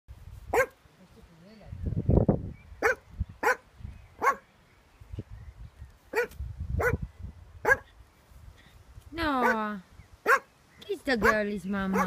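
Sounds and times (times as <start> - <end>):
small dog barking: 0.5 - 0.8, 2.8 - 4.5, 6.1 - 7.0, 7.6 - 7.9, 9.4 - 10.5, 11.2 - 12.0.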